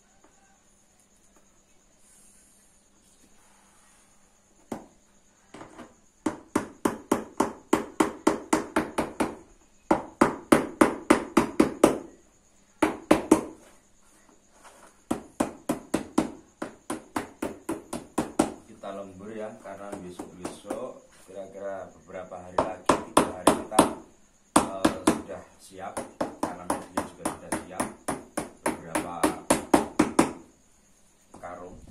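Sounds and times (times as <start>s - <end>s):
hammer knocking on carpet: 4.7s - 12.1s, 12.8s - 13.6s, 15.1s - 18.6s, 19.8s - 20.9s, 26.0s - 30.5s.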